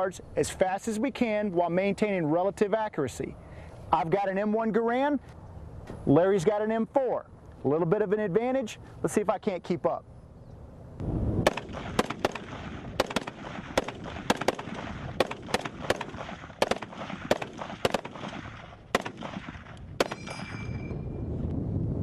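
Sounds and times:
rifles firing rapidly: 0:11.5 - 0:20.4
metallic ringing ping: 0:20.0 - 0:21.3.

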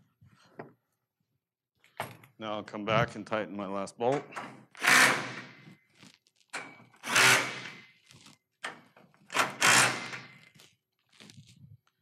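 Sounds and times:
cordless power driver bursts: 0:09.4 - 0:10.4.

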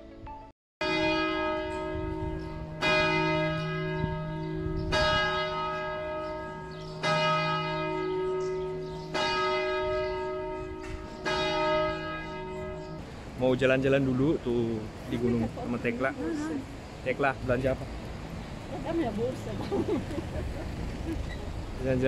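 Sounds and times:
church bell tolling: 0:00.8 - 0:13.0.

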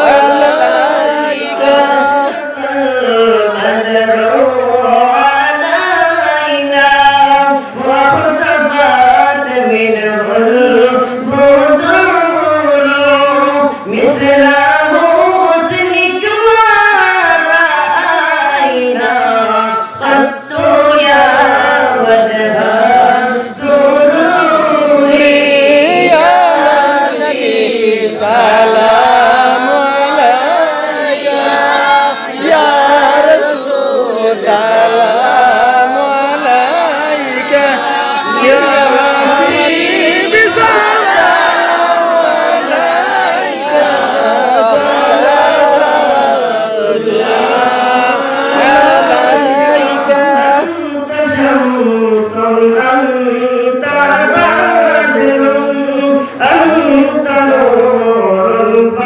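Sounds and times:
men and boys singing unaccompanied: 0:00.0 - 0:59.0.

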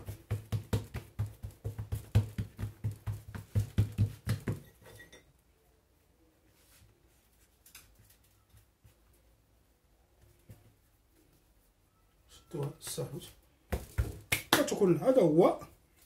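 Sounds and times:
palm patting dough: 0:00.0 - 0:04.8, 0:10.1 - 0:11.5, 0:12.5 - 0:14.9
faint handling sounds: 0:06.2 - 0:14.0.

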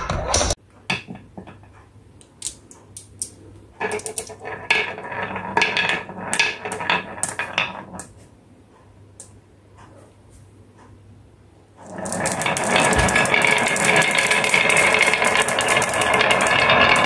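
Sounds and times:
glass marbles rolling on wooden track: 0:00.9 - 0:01.7, 0:02.4 - 0:08.3, 0:11.8 - 0:17.0
marbles clicking: 0:02.2 - 0:08.2, 0:11.8 - 0:17.0.

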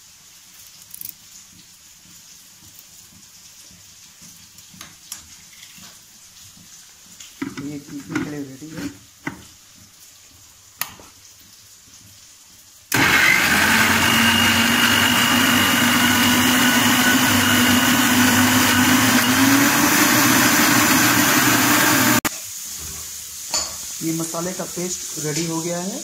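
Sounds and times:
mixer grinder motor running: 0:12.9 - 0:22.3.

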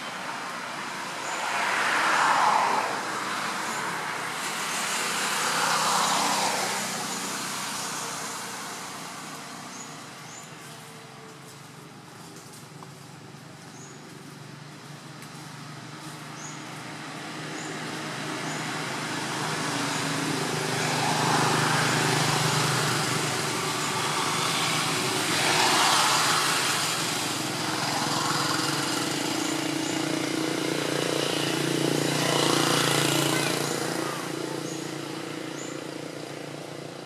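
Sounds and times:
road noise: 0:00.0 - 0:37.0
vehicle engine hum: 0:00.0 - 0:37.0.

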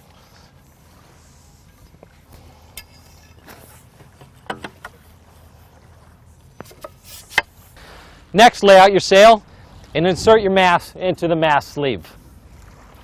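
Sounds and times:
light clicks and knocks of metal: 0:02.8 - 0:05.0.

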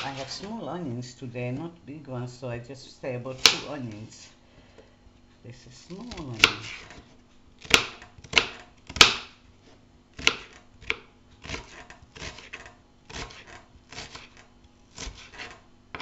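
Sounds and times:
knife chopping on plastic board: 0:03.4 - 0:03.7, 0:05.9 - 0:09.4, 0:10.2 - 0:16.0.

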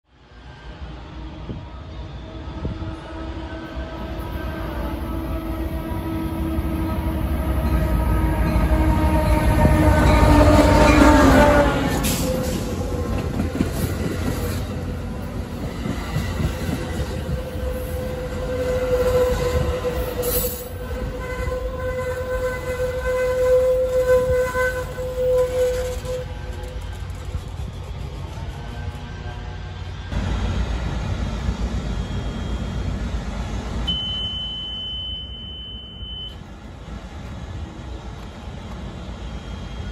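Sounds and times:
train engine and wheels rumbling: 0:00.0 - 0:39.9
train horn: 0:01.0 - 0:13.9, 0:16.5 - 0:26.8
train wheels squealing: 0:15.6 - 0:21.6, 0:22.3 - 0:30.1, 0:31.8 - 0:33.1, 0:39.0 - 0:39.9.

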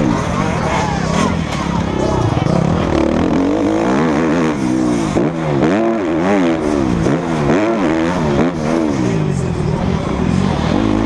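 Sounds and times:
motocross bike engine revving: 0:00.0 - 0:11.0.

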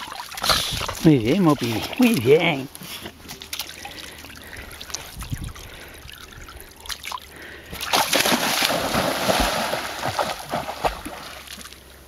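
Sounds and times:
dog splashing in water: 0:07.8 - 0:11.8.

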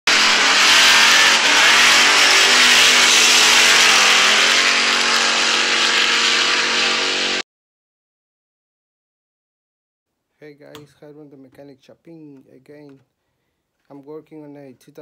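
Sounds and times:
car engine revving hard: 0:00.1 - 0:07.4.

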